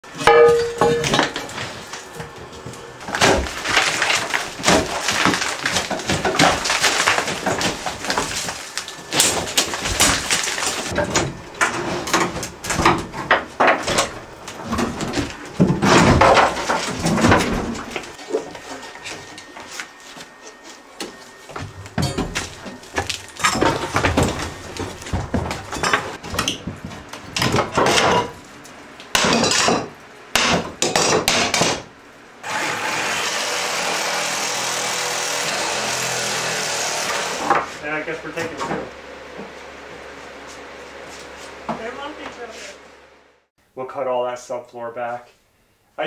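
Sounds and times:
falling debris clattering: 0.2s - 1.9s, 3.0s - 18.5s, 21.6s - 28.4s
drywall cracking and crunching: 3.0s - 18.6s, 21.6s - 28.4s.

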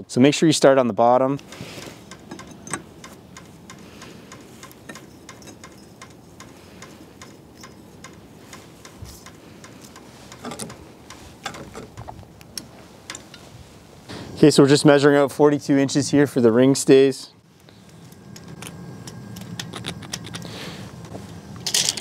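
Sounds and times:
tape clicking and crackling: 1.4s - 13.4s, 17.6s - 20.5s.

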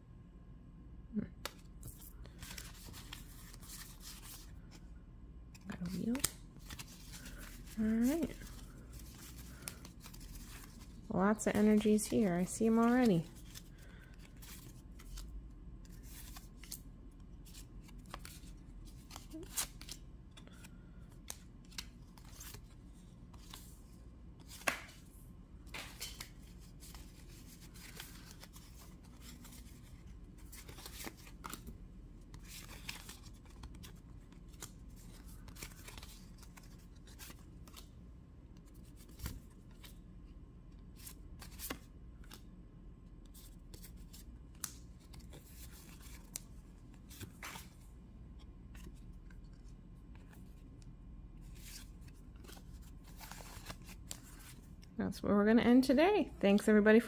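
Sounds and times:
trading cards shuffling: 1.4s - 4.8s, 5.5s - 37.9s, 43.3s - 47.8s, 51.4s - 54.9s
card snapping: 24.5s - 25.0s.

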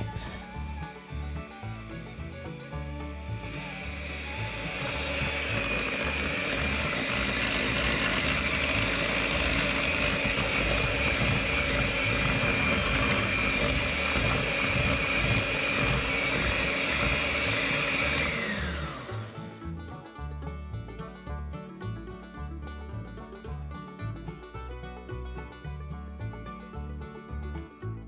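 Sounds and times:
electric hand mixer whining: 0.0s - 19.7s.

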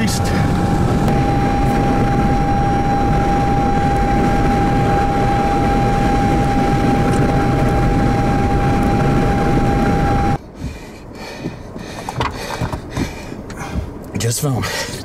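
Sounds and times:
high-pitched tone: 0.0s - 10.4s
road and wind rumble: 0.0s - 15.0s.

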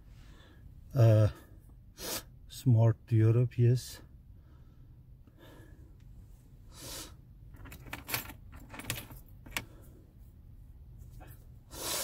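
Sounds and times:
low steady hum: 0.0s - 12.0s
light clicks and metallic rattles: 7.5s - 9.8s.

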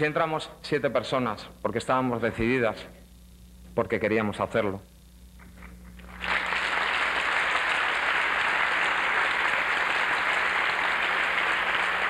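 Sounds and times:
large audience applauding: 6.0s - 12.0s.

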